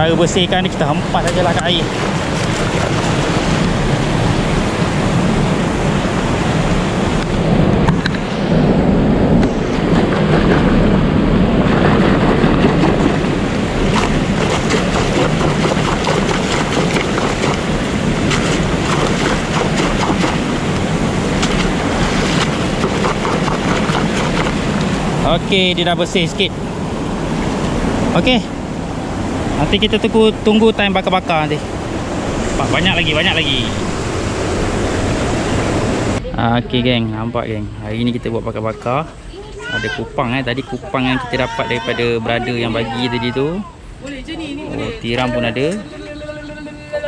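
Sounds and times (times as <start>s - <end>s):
water rushing and churning: 0.0s - 36.2s
oyster bag splashing: 13.8s - 24.8s.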